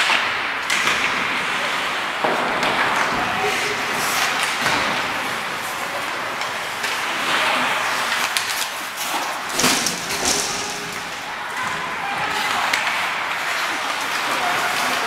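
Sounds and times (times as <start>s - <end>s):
hockey sticks clacking: 0.0s - 15.0s
skates scraping on ice: 0.0s - 15.0s
hall noise: 9.5s - 13.0s.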